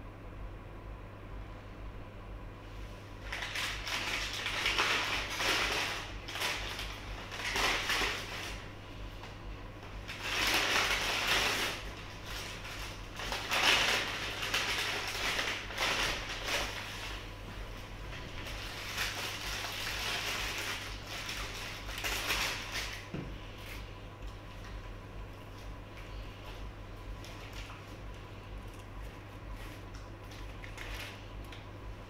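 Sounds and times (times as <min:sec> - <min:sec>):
steady low hum: 0:00.0 - 0:32.0
paper bag and wrapper crinkling: 0:03.2 - 0:08.7, 0:10.0 - 0:17.3, 0:18.0 - 0:23.1, 0:29.5 - 0:31.6.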